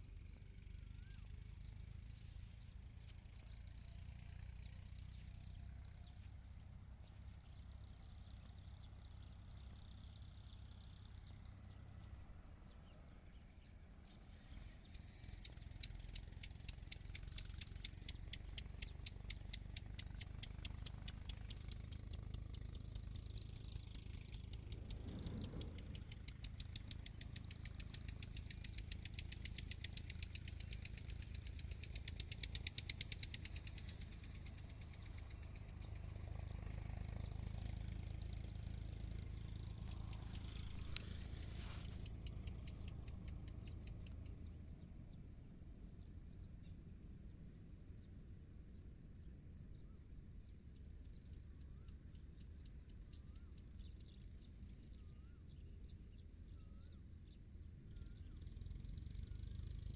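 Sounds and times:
faint bird chirps: 0.0 - 59.9
low steady rumble: 0.0 - 59.9
fast high ticking: 15.0 - 35.7, 39.9 - 44.4.

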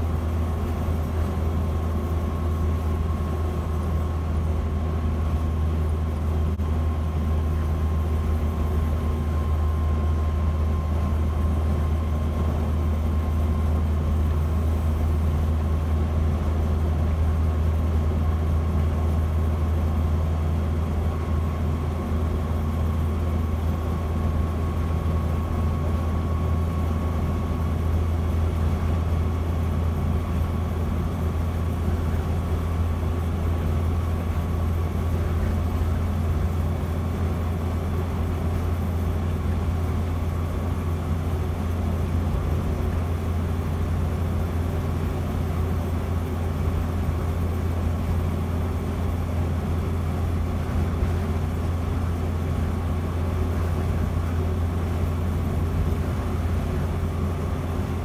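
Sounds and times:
faint steady whine: 0.0 - 58.0.

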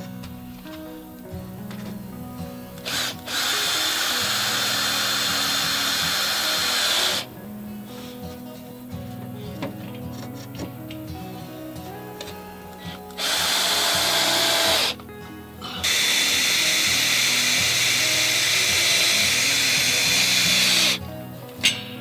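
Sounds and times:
power tool whining: 0.0 - 7.4, 12.2 - 21.1
background music: 0.0 - 22.0.

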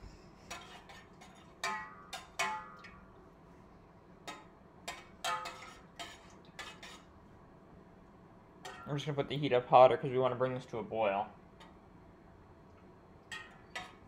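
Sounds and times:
spoon stirring sauce in a saucepan: 0.5 - 3.1, 4.2 - 7.2, 13.2 - 14.0.

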